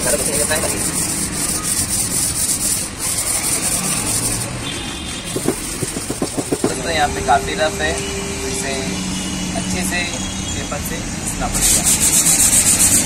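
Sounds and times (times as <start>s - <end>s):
sandpaper rubbing on metal: 0.0s - 6.9s, 11.5s - 13.0s.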